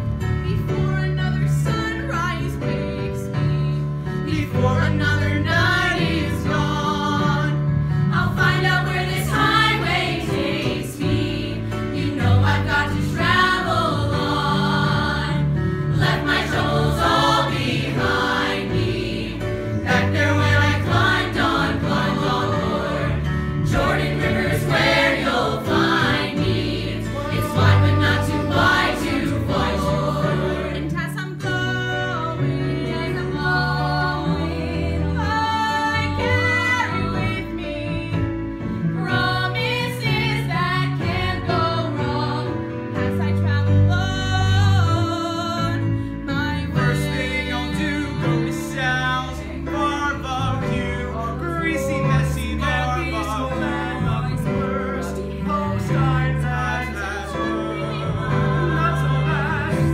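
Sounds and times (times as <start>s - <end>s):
low instrumental accompaniment: 0.0s - 39.5s
choir singing: 4.2s - 37.9s, 38.9s - 43.2s, 46.4s - 59.9s.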